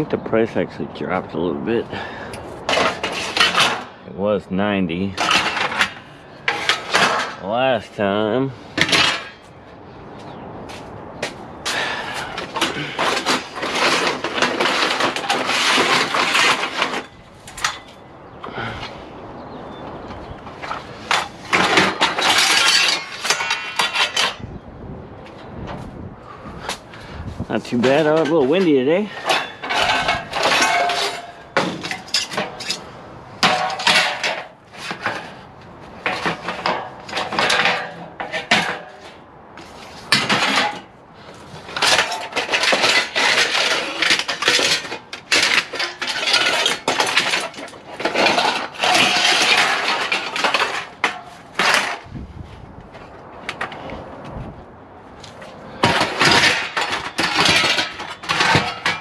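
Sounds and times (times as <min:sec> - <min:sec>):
aluminum bars clattering together: 0:02.0 - 0:04.0, 0:05.2 - 0:07.5, 0:08.8 - 0:09.5, 0:11.6 - 0:18.8, 0:20.6 - 0:24.5, 0:27.7 - 0:35.4, 0:36.0 - 0:39.2, 0:40.0 - 0:52.1, 0:55.2 - 0:59.0.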